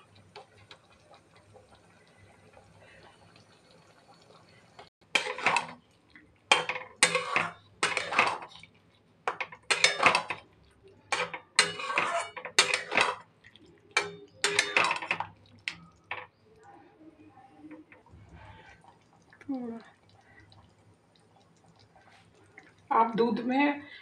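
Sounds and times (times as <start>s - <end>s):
metal spatula scraping a pan: 5.1s - 5.8s, 6.5s - 8.6s, 11.1s - 13.2s, 14.0s - 15.2s.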